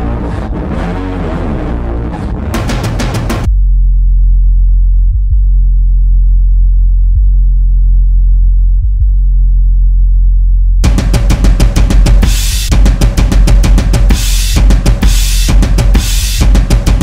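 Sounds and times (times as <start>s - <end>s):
deep bass drone: 0.0s - 17.0s
drum kit beat with cymbals: 2.6s - 3.5s, 10.8s - 17.0s.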